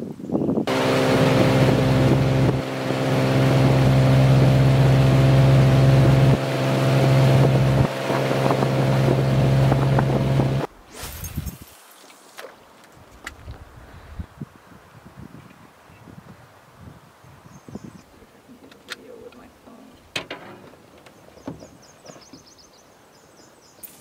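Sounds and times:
outboard motor humming: 0.7 - 10.7
rushing water noise: 0.7 - 12.7.

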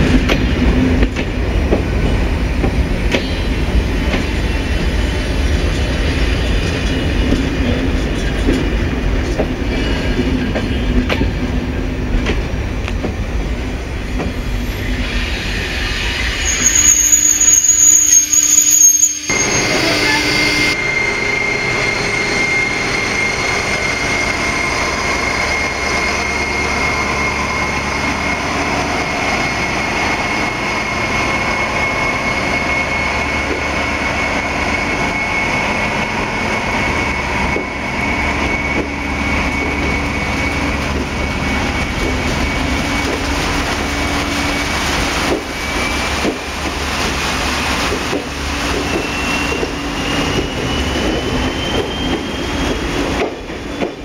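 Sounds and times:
diesel locomotive running with whine: 0.0 - 54.0
train coaches rolling past: 0.0 - 54.0
high wheel squeal: 14.4 - 43.2, 48.6 - 54.0.

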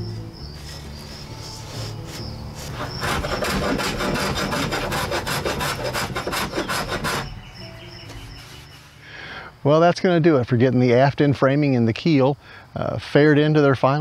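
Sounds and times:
hand rasp filing wood: 0.6 - 7.5, 8.2 - 8.9.

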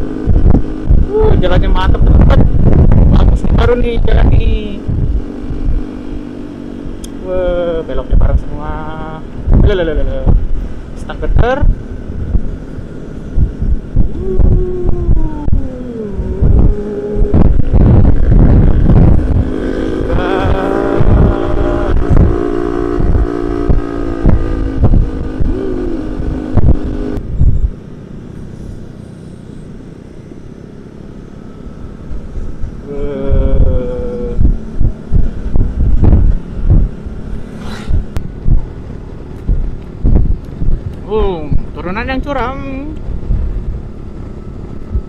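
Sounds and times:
wind buffeting microphone: 0.0 - 29.0, 31.5 - 45.0
scooter engine running: 11.7 - 33.4.

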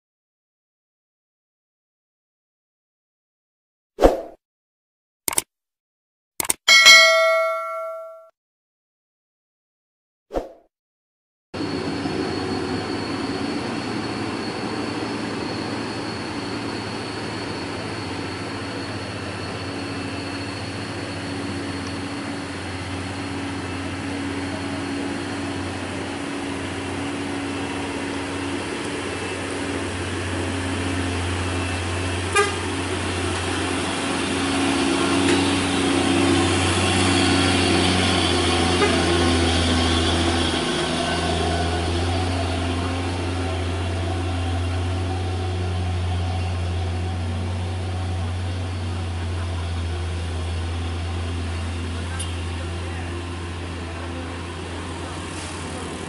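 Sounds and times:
truck diesel engine climbing: 11.6 - 56.0.

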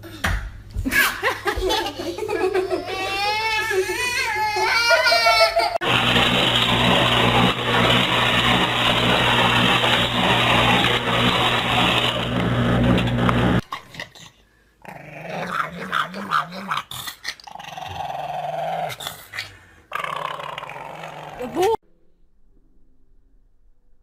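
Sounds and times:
loud whirring with low hum: 5.8 - 13.6
dog growling and grumbling: 13.8 - 21.8.

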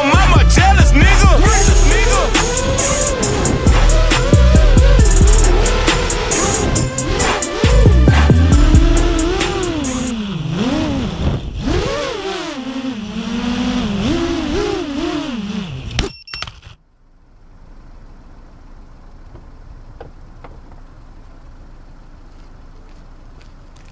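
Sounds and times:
drone motors whining: 0.0 - 16.8.

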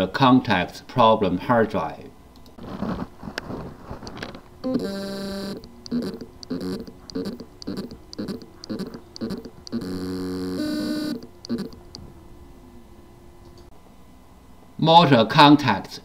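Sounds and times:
hard drive motor buzzing pulses: 4.1 - 12.6.

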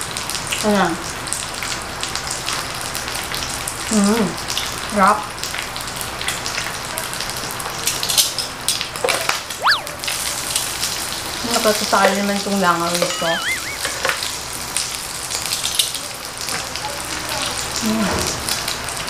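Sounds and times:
pork sizzling on a grill: 0.0 - 9.0, 15.1 - 19.0.

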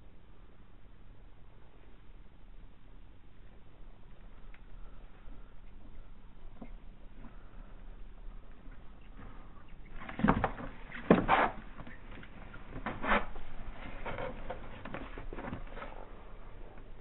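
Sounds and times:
claws scraping on plastic tub: 9.2 - 16.1.

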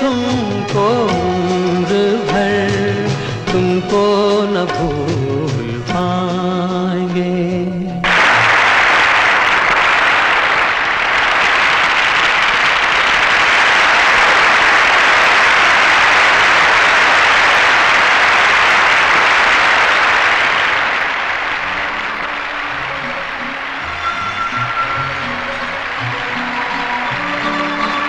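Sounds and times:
music: 0.0 - 8.7, 21.4 - 28.0
audience applauding: 8.0 - 28.0.

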